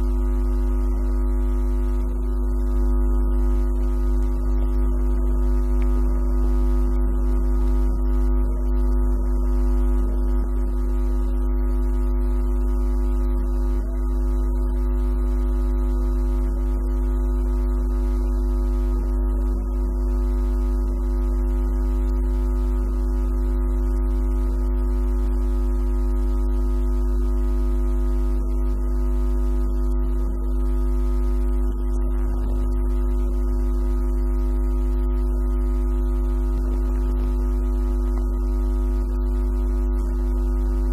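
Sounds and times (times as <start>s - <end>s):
deep low hum: 0.0s - 25.4s, 39.8s - 40.9s
drone of held tones: 0.0s - 40.9s.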